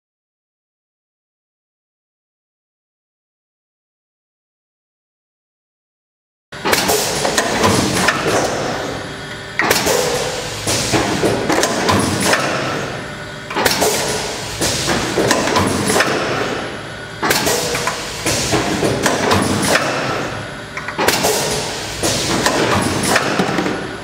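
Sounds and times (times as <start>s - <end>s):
machine clicking and clattering: 9.6s - 12.8s, 13.5s - 16.6s, 17.2s - 23.9s.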